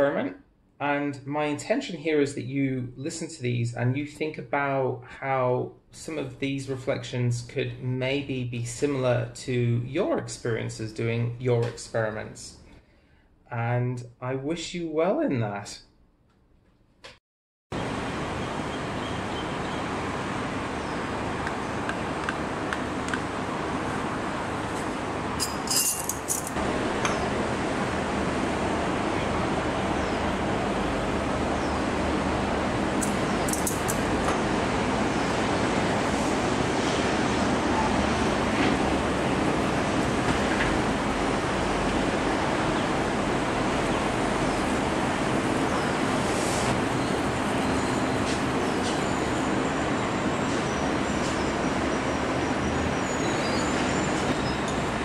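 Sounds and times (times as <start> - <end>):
metal spoon clinking on ceramic: 25.4 - 26.6, 33.5 - 34.0.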